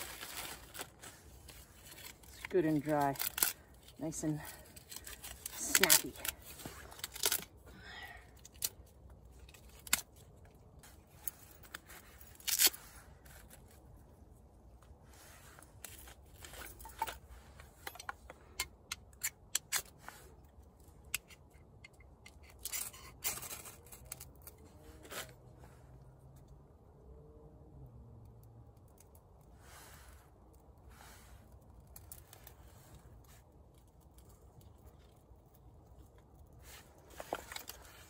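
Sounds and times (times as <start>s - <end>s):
birch bark tearing and snapping: 0.0s - 7.6s, 8.3s - 10.4s, 11.6s - 12.9s, 21.0s - 25.4s.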